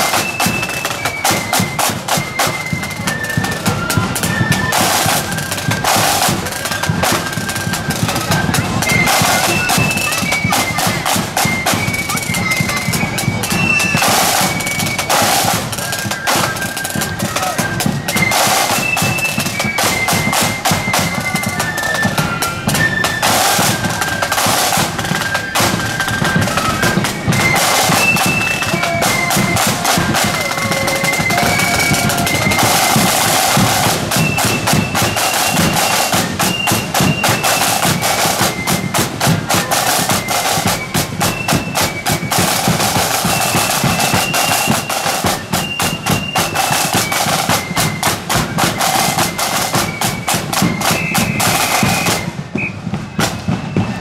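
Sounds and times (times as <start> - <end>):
high flute melody: 0.0 - 54.0
snare drums rattling: 0.0 - 54.0
bass drum beats: 27.0 - 35.0.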